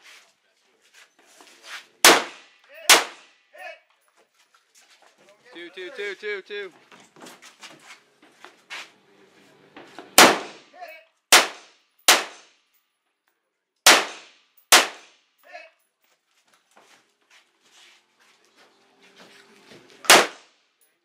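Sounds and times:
rifle shots: 0:02.0 - 0:03.3, 0:10.2 - 0:10.7, 0:11.3 - 0:12.5, 0:13.8 - 0:15.2, 0:20.0 - 0:20.5.

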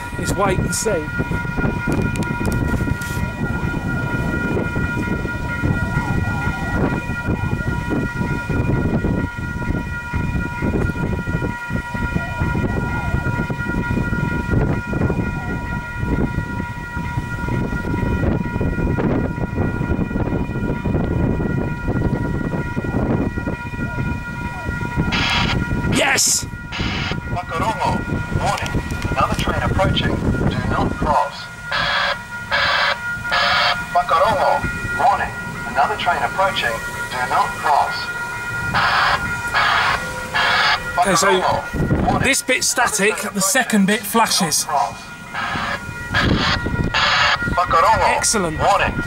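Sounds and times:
low rumbling noise: 0:00.0 - 0:42.6
level crossing warning bells: 0:00.0 - 0:49.0.

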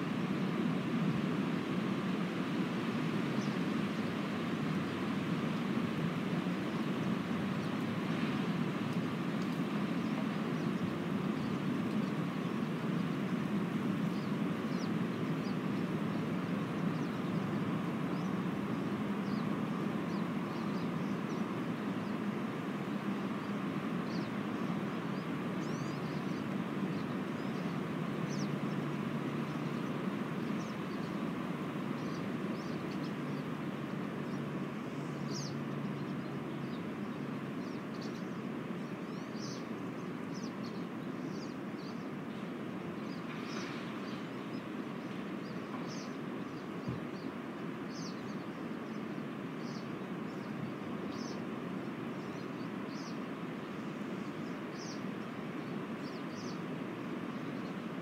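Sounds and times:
wind through trees: 0:00.0 - 0:58.0.

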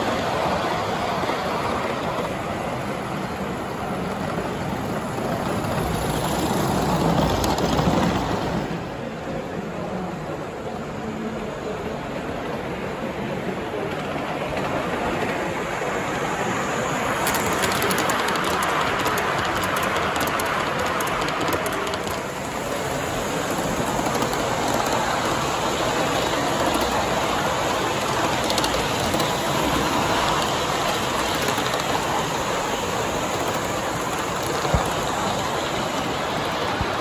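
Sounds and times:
model steam locomotive running: 0:00.0 - 0:37.0
steam hissing: 0:15.6 - 0:37.0.

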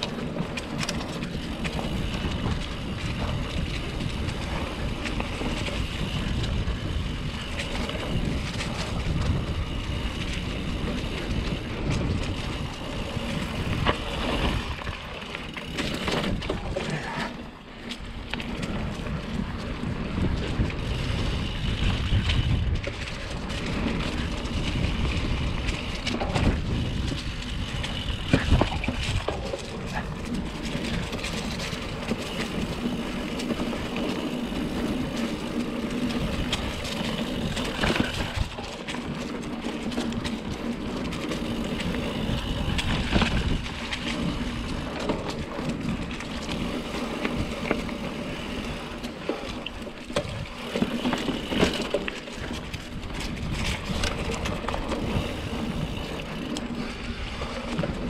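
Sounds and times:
bike knocking and rattling: 0:00.0 - 0:58.0
bike tyre riding noise: 0:00.0 - 0:58.0.

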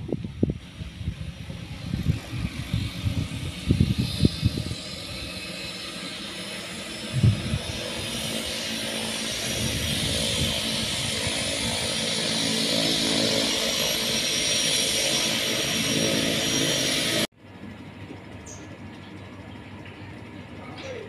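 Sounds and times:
turboprop engines hissing: 0:00.0 - 0:21.0.

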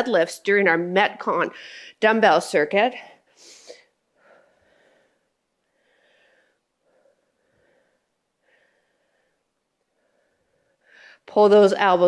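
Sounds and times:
woman breathing softly: 0:03.1 - 0:11.3.

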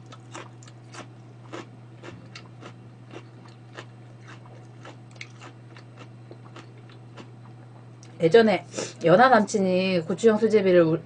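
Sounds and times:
person chewing raw vegetable: 0:00.0 - 0:08.2
steady low hum: 0:00.0 - 0:11.0.

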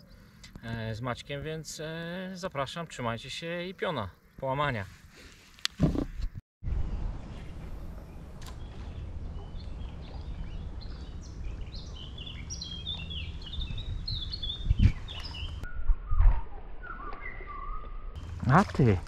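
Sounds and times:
steady low rumble: 0:06.6 - 0:14.8
small birds chirping: 0:07.3 - 0:19.0.

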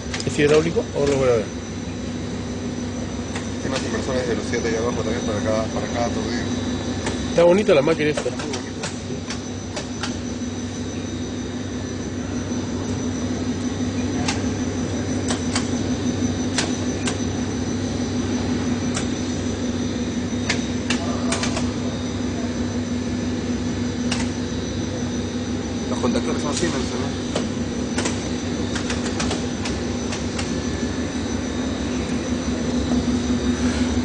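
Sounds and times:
machine line humming: 0:00.0 - 0:34.0
sharp clicks: 0:24.1 - 0:24.4, 0:27.3 - 0:30.5.

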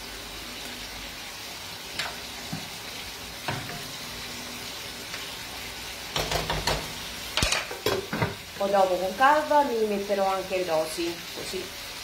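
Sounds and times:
food sizzling in a frying pan: 0:00.0 - 0:12.0.

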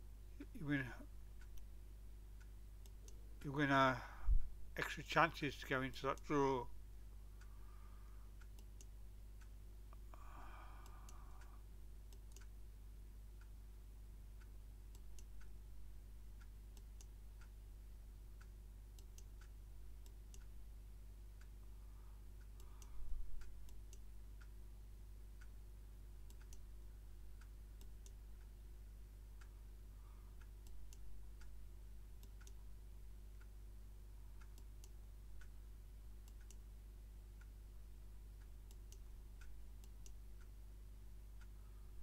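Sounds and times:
steady low hum: 0:00.0 - 0:42.0
computer mouse clicking: 0:19.0 - 0:20.5, 0:26.3 - 0:26.7, 0:32.2 - 0:32.6.

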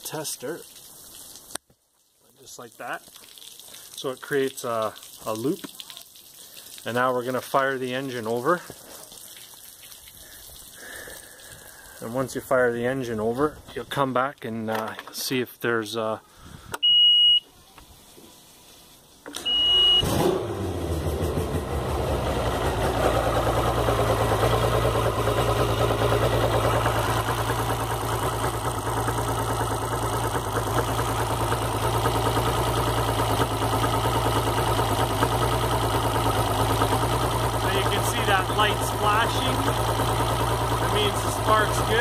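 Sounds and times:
warning horn beep: 0:16.8 - 0:17.5, 0:19.4 - 0:20.3
outboard engine idling: 0:21.0 - 0:42.0.

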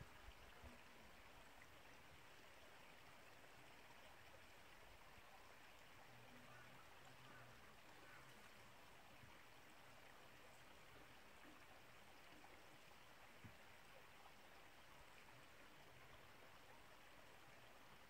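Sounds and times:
faint hiss of distant stream: 0:00.0 - 0:18.0.

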